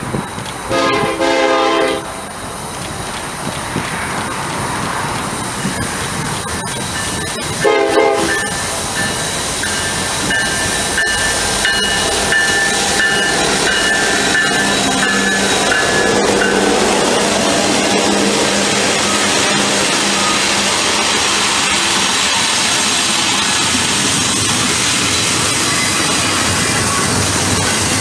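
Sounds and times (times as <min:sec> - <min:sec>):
train horn blast: 0:00.7 - 0:02.2, 0:07.6 - 0:08.4.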